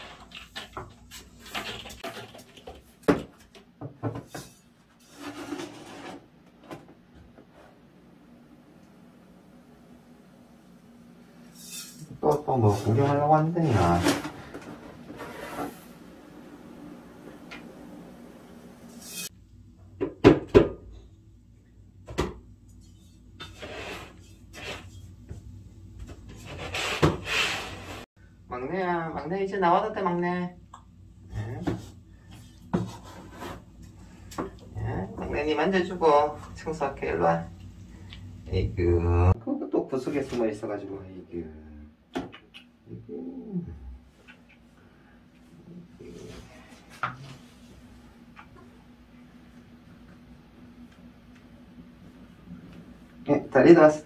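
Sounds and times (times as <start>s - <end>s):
scraping cat litter: 5.0s - 6.2s, 11.6s - 15.9s, 23.4s - 24.9s, 26.4s - 28.0s.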